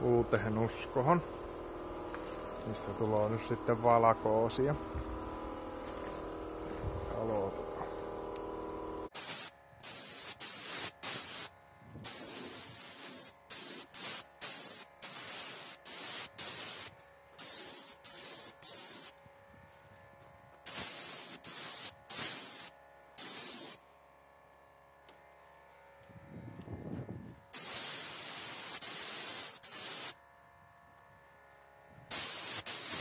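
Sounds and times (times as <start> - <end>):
spray paint can hissing: 9.1 - 19.2, 20.6 - 23.8, 27.5 - 30.2, 32.1 - 33.0.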